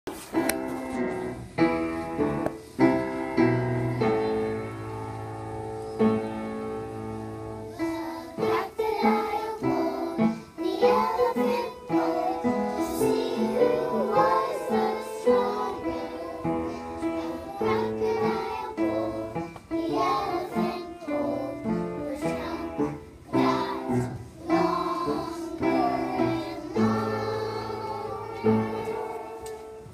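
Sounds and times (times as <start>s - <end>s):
child singing: 7.6s - 29.9s.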